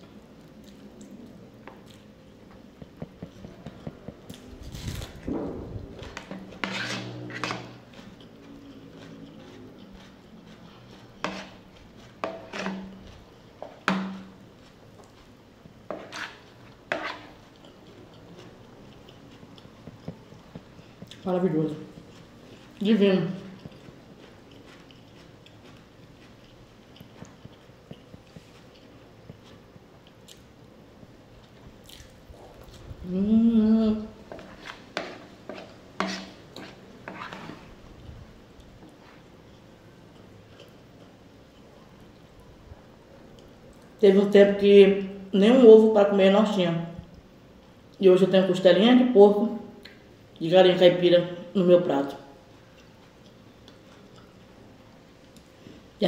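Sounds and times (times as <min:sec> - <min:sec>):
chewing with mouth smacks: 0:07.4 - 0:22.8, 0:23.4 - 0:30.5, 0:31.4 - 0:33.0, 0:34.3 - 0:42.5, 0:52.5 - 0:55.5
woman humming: 0:33.0 - 0:34.2.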